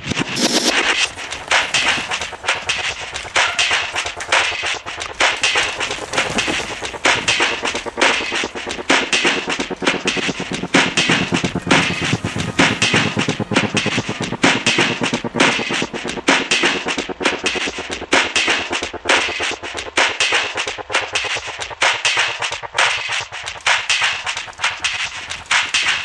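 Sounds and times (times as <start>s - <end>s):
soundtrack music with hard drums: 0.0s - 26.0s.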